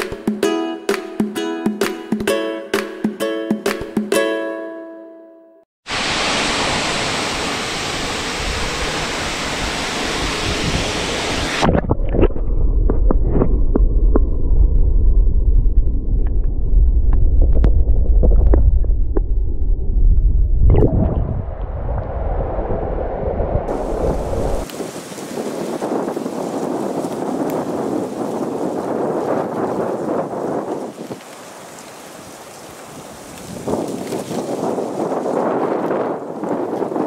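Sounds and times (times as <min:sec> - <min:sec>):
waterfall rushing: 0:05.9 - 0:11.7, 0:23.7 - 0:26.0
muffled underwater rumble: 0:11.6 - 0:24.6.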